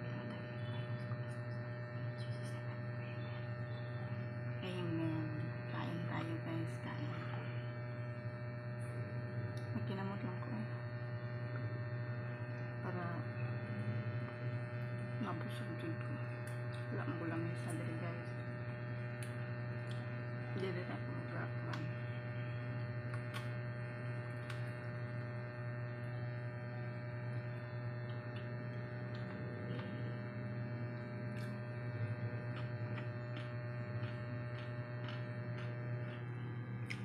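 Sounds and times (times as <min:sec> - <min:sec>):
low electrical hum: 0:00.0 - 0:37.0
eating clicks and smacks: 0:16.2 - 0:16.9, 0:19.1 - 0:20.2, 0:22.8 - 0:23.6, 0:24.3 - 0:25.0, 0:28.0 - 0:30.1, 0:30.9 - 0:31.7, 0:32.4 - 0:37.0.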